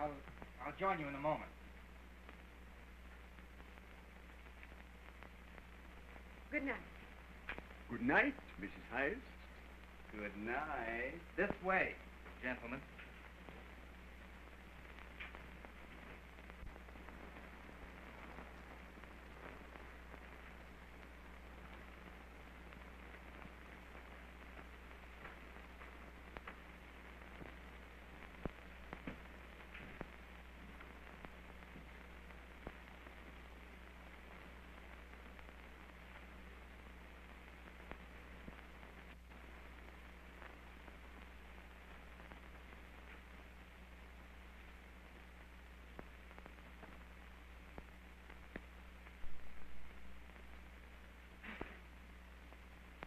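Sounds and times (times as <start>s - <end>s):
soundtrack hum and hiss: 0.0s - 53.0s
faint clicks: 7.4s - 7.8s, 14.9s - 17.5s.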